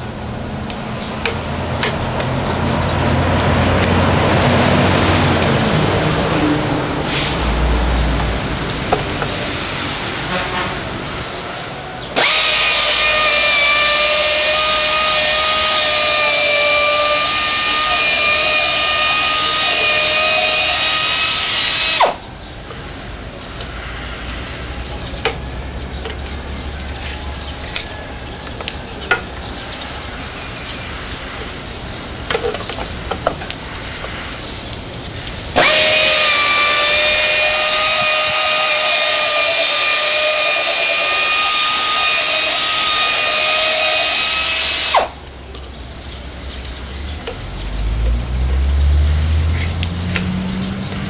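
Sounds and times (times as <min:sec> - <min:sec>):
pneumatic polisher whining: 0:12.2 - 0:22.2, 0:35.6 - 0:45.2.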